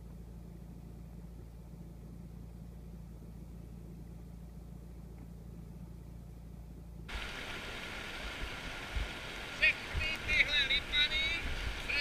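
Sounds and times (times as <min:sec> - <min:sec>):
steady low hum: 0:00.0 - 0:12.0
fast-flowing river rushing: 0:07.1 - 0:12.0.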